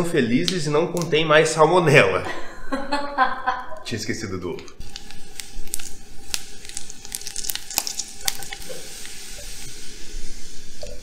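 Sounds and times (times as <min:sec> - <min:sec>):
sharp crackles: 0:04.7 - 0:10.9
food sizzling in a frying pan: 0:04.8 - 0:11.0.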